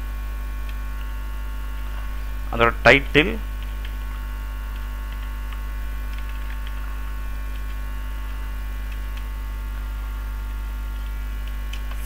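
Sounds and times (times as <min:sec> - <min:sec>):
electrical mains hum: 0:00.0 - 0:12.0
keyboard typing clicks: 0:04.7 - 0:06.9.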